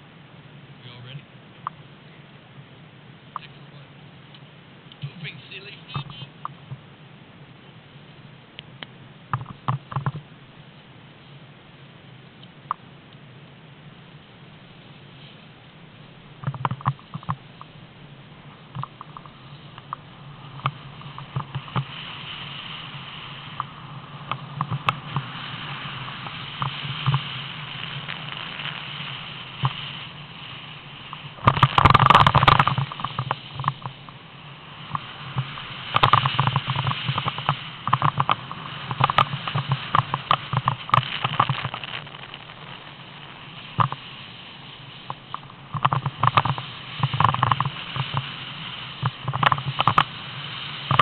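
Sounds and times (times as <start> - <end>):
wind noise on microphone: 16.1 - 51.0
snowboard scraping over snow: 18.4 - 51.0.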